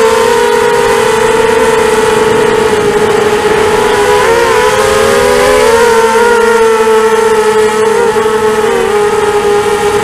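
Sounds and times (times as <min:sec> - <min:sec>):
quadcopter motors whining: 0:00.0 - 0:10.0.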